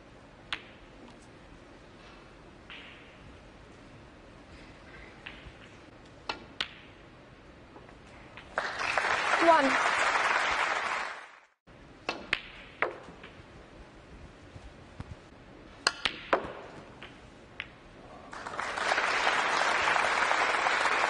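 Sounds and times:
snooker balls clicking: 0:00.5 - 0:01.2, 0:05.2 - 0:07.0, 0:15.8 - 0:17.8
audience applause: 0:08.6 - 0:11.5, 0:18.3 - 0:21.0.

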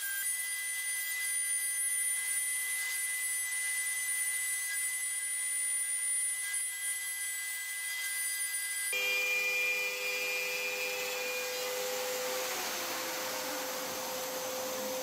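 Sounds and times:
router whining: 0:00.0 - 0:15.0
shop vacuum running: 0:08.9 - 0:15.0.

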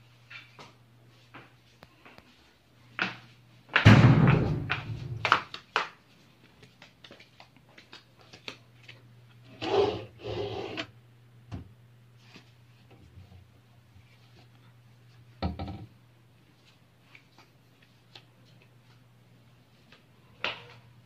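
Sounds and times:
steady low hum: 0:00.0 - 0:05.4.

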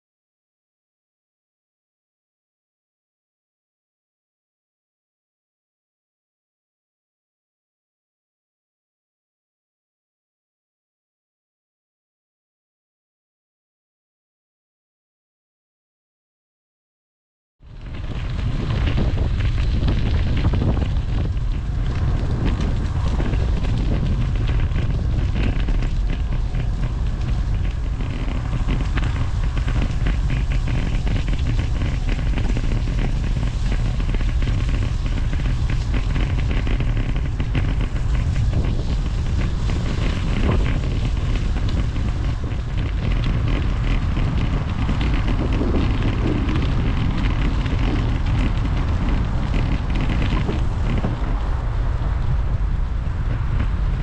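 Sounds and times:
wind buffeting microphone: 0:17.6 - 0:54.0.

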